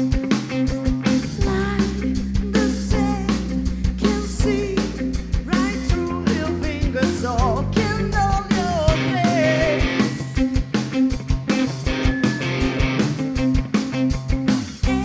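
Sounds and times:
bass guitar: 0:00.0 - 0:15.0
drum kit: 0:00.0 - 0:15.0
electric guitar: 0:00.0 - 0:15.0
woman singing lead: 0:00.7 - 0:10.7, 0:14.7 - 0:15.0.

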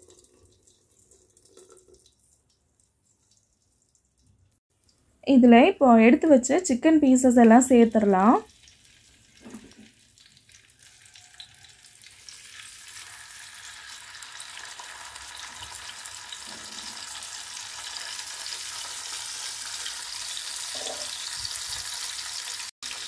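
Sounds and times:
chicken sizzling in hot fat: 0:08.2 - 0:23.0.

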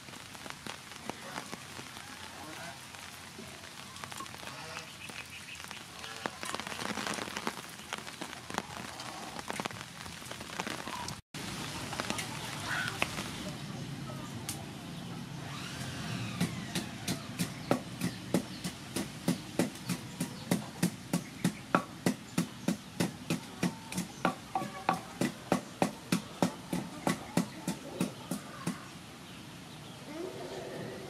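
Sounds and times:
pestle pounding in wooden mortar: 0:16.4 - 0:28.8.

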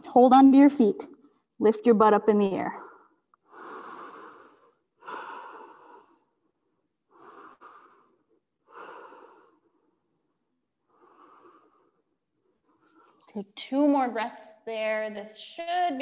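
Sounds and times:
woman breathing: 0:02.8 - 0:10.1, 0:10.8 - 0:13.3.

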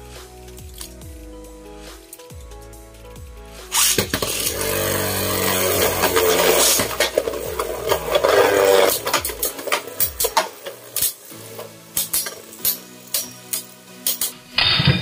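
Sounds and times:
spinning tops grinding on plastic: 0:03.7 - 0:14.3
spinning tops clacking together: 0:03.7 - 0:15.0.

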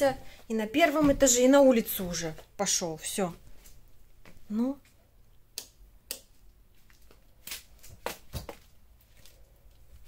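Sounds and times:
soft footsteps: 0:06.7 - 0:10.0.

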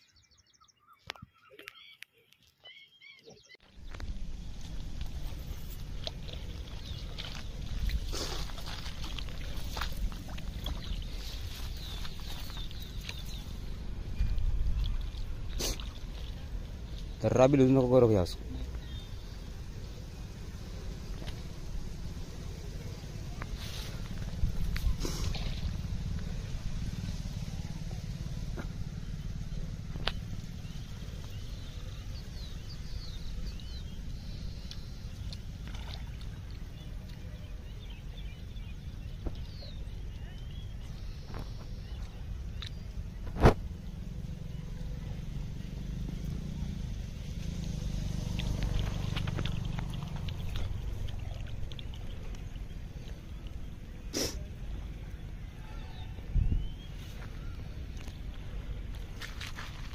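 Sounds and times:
small birds chirping: 0:00.0 - 0:59.9
wind rumble on microphone: 0:03.8 - 0:17.3, 0:18.4 - 0:45.5, 0:54.8 - 0:59.9.

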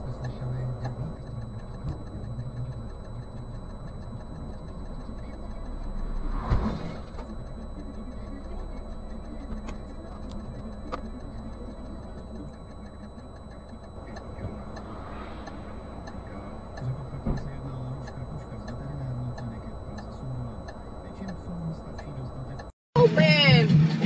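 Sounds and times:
loud thump: 0:06.4 - 0:07.2.

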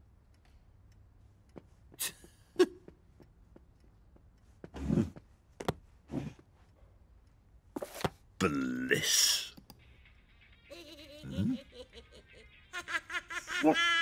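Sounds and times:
click: 0:09.6 - 0:09.8.

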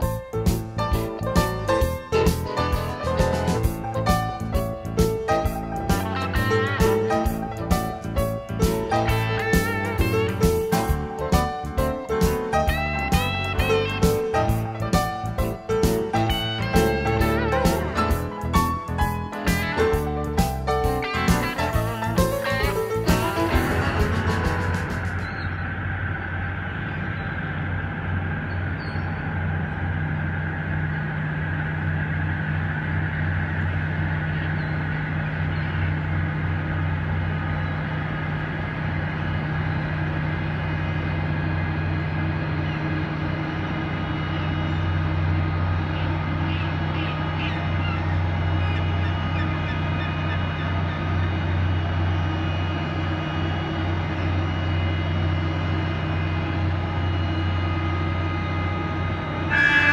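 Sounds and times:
boat diesel engine droning: 0:00.0 - 0:59.9
faint gull calls: 0:44.2 - 0:52.6, 0:59.4 - 0:59.9.

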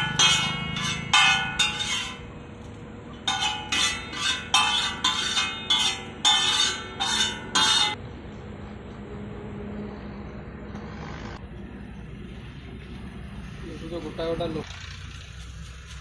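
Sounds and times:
metal spatula clanging on griddle: 0:00.0 - 0:08.0.

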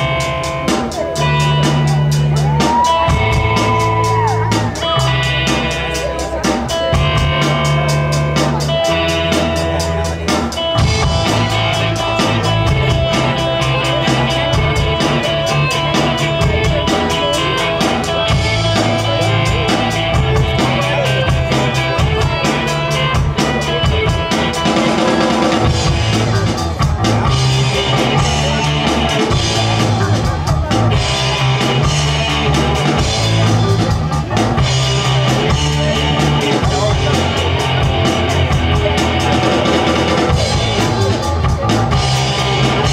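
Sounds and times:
drum kit beat: 0:00.0 - 0:42.9
live rock band playing: 0:00.0 - 0:42.9.

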